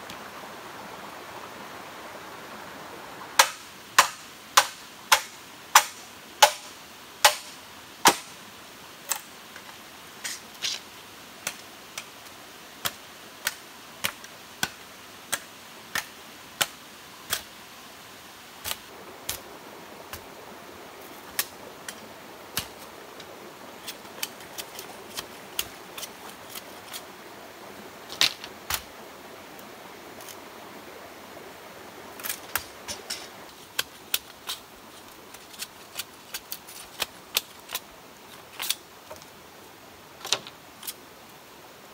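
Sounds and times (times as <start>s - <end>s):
machete chopping bamboo: 3.4s - 8.3s, 12.8s - 17.5s, 18.6s - 19.4s.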